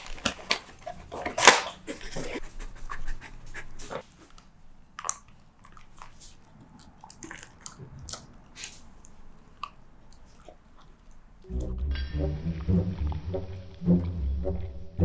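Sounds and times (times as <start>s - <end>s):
dog chewing crunchy bites: 4.9s - 11.4s.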